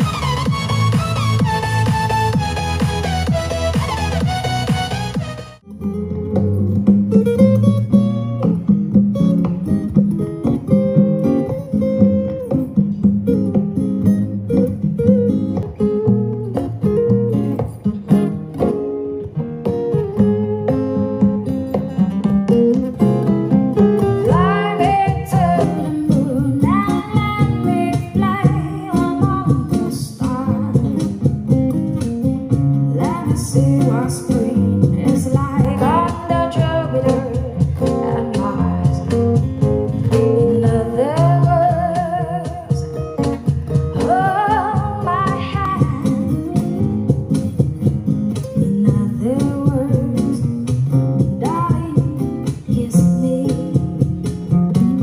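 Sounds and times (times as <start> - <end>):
song from portable speaker: 0.0 - 8.7, 22.8 - 55.0
guitar: 0.0 - 55.0
person singing: 24.2 - 31.2, 32.9 - 39.3, 40.1 - 42.9, 48.6 - 50.4, 51.4 - 54.1.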